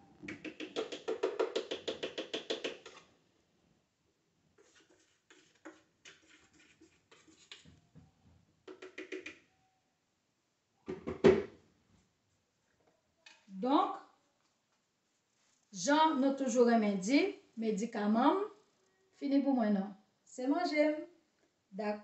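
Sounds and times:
spoon tapping in blender jar: 8.7 - 9.4.

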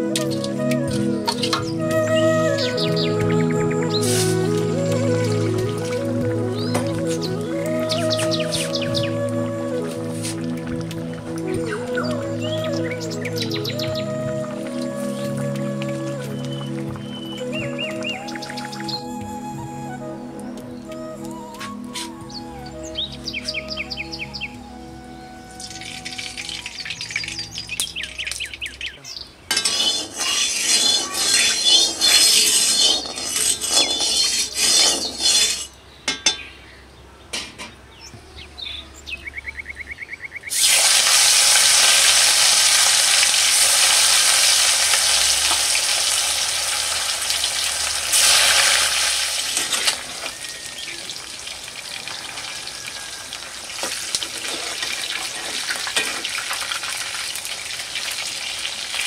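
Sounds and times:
stirring and scraping in a pan: 29.5 - 35.8
food sizzling in hot oil: 29.6 - 35.6, 40.5 - 59.0.

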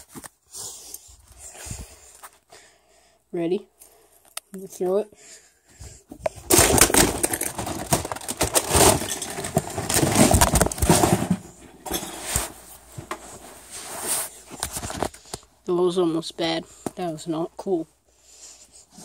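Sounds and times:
recording device handling noise: 6.1 - 15.6.

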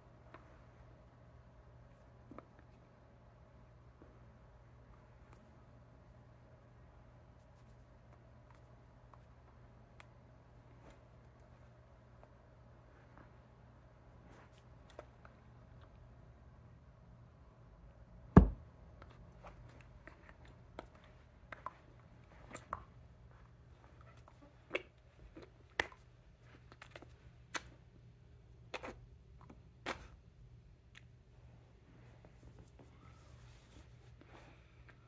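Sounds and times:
faint low hum: 0.0 - 35.0
loud thump: 18.4 - 18.6.

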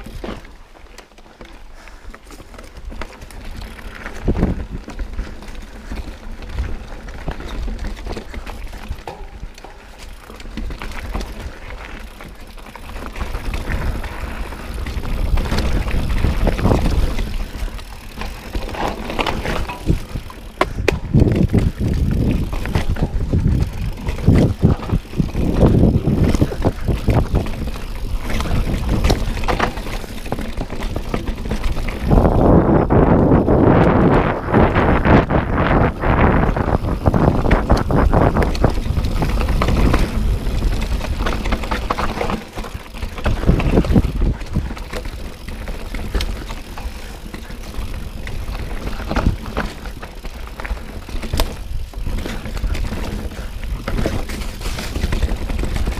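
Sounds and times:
bike knocking and rattling: 0.0 - 55.9
bike tyres rumbling on dirt: 0.0 - 55.9
wind buffeting microphone: 4.1 - 5.3, 13.3 - 42.3, 43.1 - 49.9.

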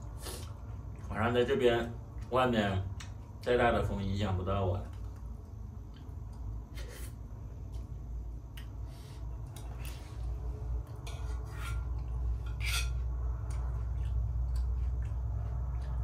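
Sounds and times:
low rumble of wind: 9.6 - 16.0
spoon scraping a bowl: 11.0 - 13.1.

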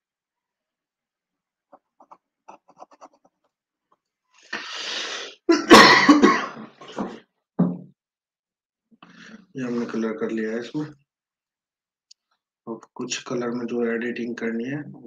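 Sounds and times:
man coughing: 5.5 - 6.8.

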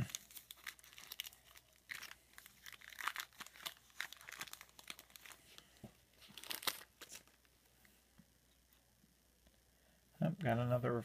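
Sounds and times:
foil wrapper crinkling and tearing: 0.0 - 7.5.

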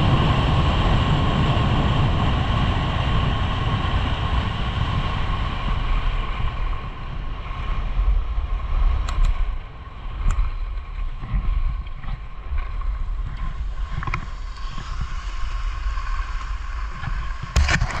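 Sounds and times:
wind buffeting microphone: 0.0 - 18.0
skis hissing over snow: 12.8 - 18.0.

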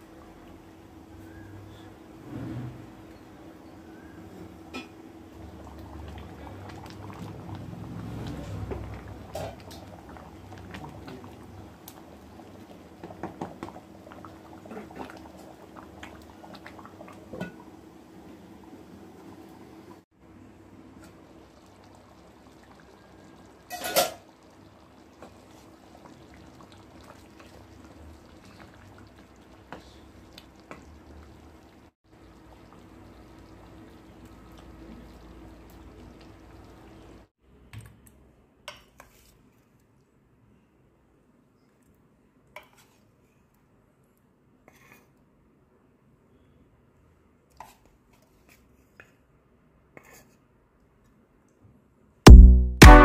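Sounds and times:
thick gravy bubbling: 3.9 - 37.3
sharp knock: 52.3 - 53.0.

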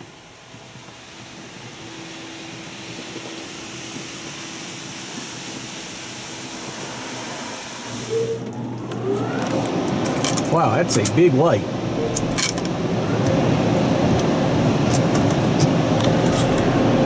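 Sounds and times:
water spraying onto car: 0.0 - 8.1
low steady hum: 0.0 - 17.0.

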